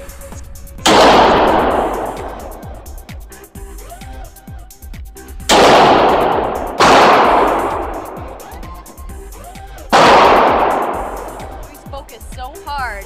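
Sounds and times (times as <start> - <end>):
pistol shots with echo: 0.9 - 3.2, 5.4 - 8.9, 9.9 - 11.9.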